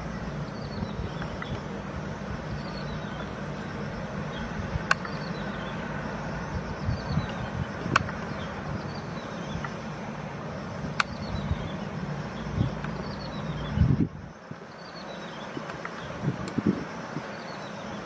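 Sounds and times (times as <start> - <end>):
steady low rumble: 0.0 - 18.0
sharp clicks: 4.8 - 5.3, 7.2 - 8.4, 10.9 - 11.4.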